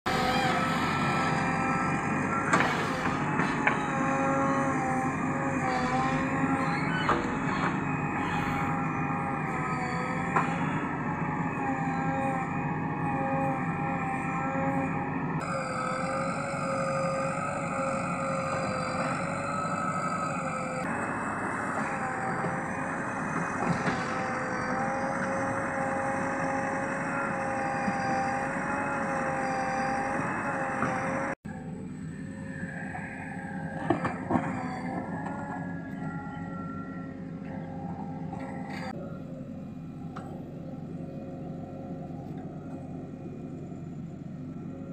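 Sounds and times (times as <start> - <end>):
diesel engine running: 0.0 - 44.9
whine: 0.0 - 44.9.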